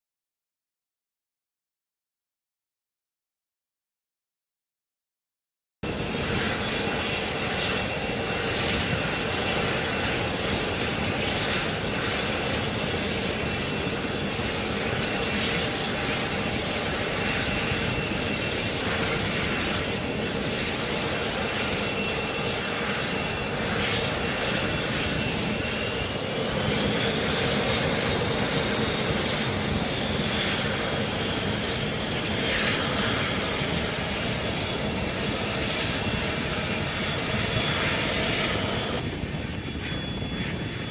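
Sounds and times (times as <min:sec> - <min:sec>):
jet engines whining and roaring: 0:05.8 - 0:40.9.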